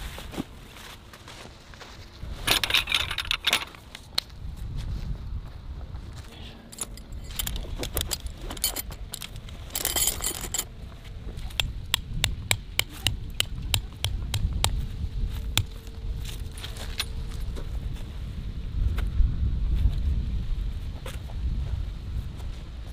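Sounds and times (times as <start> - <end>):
metal tent stakes clinking: 2.4 - 4.0, 6.7 - 10.7
tent stake tapped into ground: 11.4 - 15.8.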